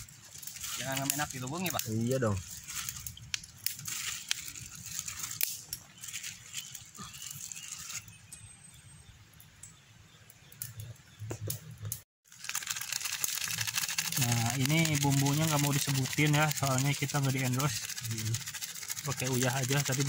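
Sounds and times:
hands handling mushrooms: 0:00.0 - 0:08.0.

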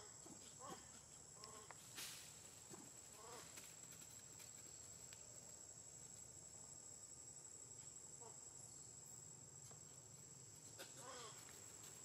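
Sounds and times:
faint macaque calls: 0:10.8 - 0:11.6.

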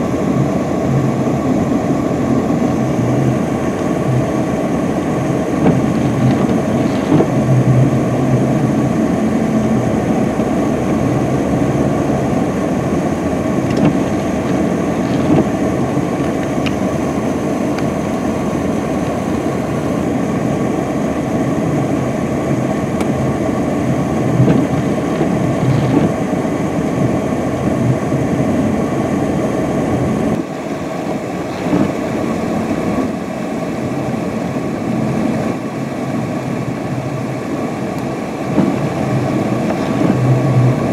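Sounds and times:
wheels spinning in snow: 0:00.0 - 0:17.0, 0:23.8 - 0:28.1, 0:38.0 - 0:40.9
wind and road noise: 0:00.0 - 0:40.9
truck engine under load: 0:22.8 - 0:40.9.

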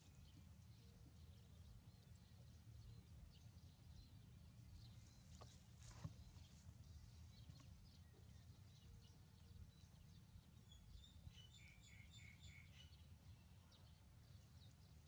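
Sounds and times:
low steady rumble: 0:00.0 - 0:11.8.

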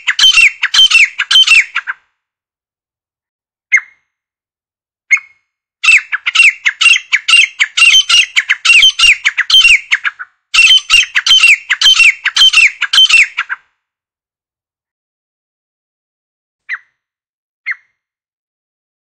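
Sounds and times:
bird calling repeated notes: 0:00.0 - 0:02.0, 0:05.1 - 0:13.6.

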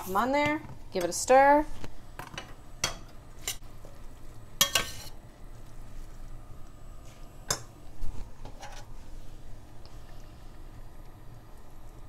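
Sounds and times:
utensil scraping a wok: 0:04.6 - 0:05.2, 0:08.3 - 0:09.0.

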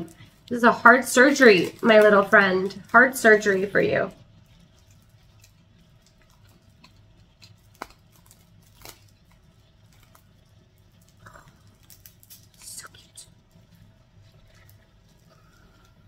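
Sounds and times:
low room hum: 0:00.0 - 0:16.0
packaging rustling: 0:04.3 - 0:12.6.

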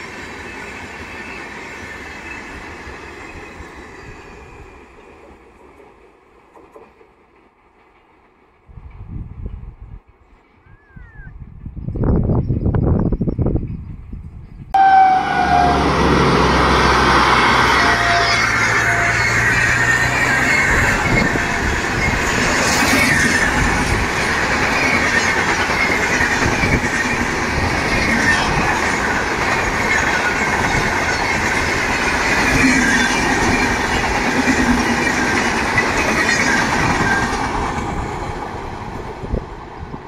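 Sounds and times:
train wheels clattering over rails: 0:00.0 - 0:10.6, 0:19.6 - 0:40.0.

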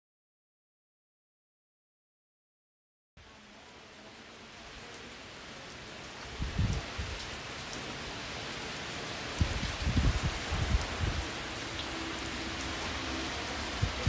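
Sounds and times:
steady rain hiss: 0:03.2 - 0:14.0.

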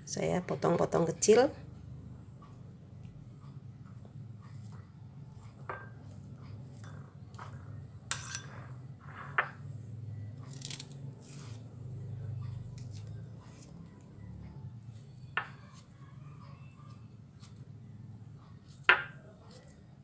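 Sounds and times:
steady low hum: 0:00.0 - 0:20.0
knife clinking on glass bowl: 0:08.1 - 0:08.6.

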